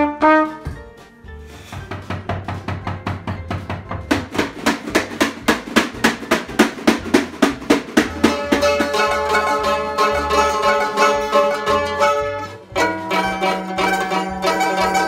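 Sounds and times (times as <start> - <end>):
tambourine beat: 0.3 - 15.0
mandolin tremolo picking: 7.9 - 15.0.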